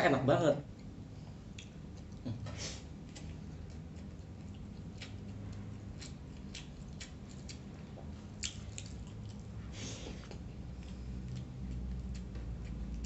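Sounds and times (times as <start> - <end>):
faint low hum: 0.0 - 13.0
wet chewing and mouth smacks: 1.5 - 2.3, 3.0 - 13.0.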